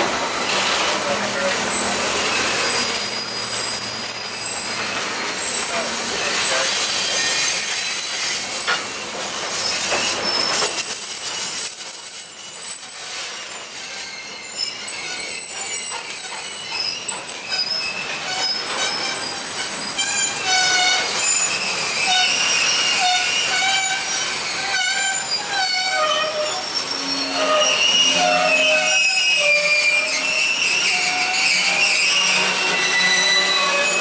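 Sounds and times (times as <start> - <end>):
steel wheels squealing: 0.0 - 34.0
train wheels rolling on track: 0.0 - 34.0.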